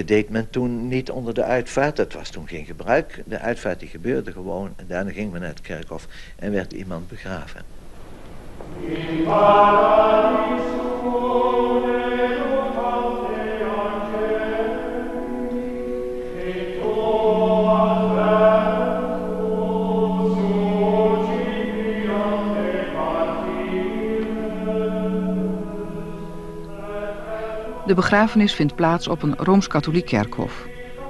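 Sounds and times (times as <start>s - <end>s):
choir singing slow chant: 8.5s - 31.0s.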